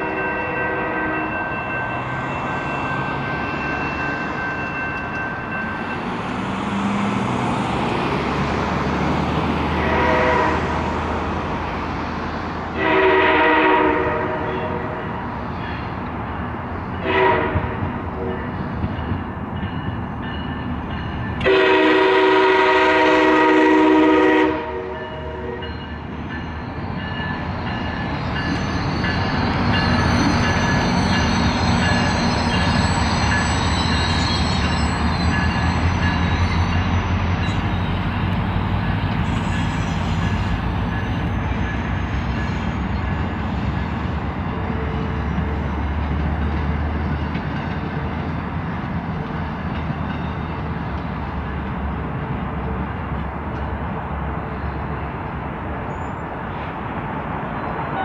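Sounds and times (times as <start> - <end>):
locomotive air horn blasts: 0.0 - 1.4, 9.7 - 10.7, 12.8 - 15.1, 17.0 - 18.5, 21.4 - 25.7
crossing bell ringing: 0.0 - 7.7, 12.8 - 23.5, 24.1 - 52.0
train rumble: 0.0 - 58.0.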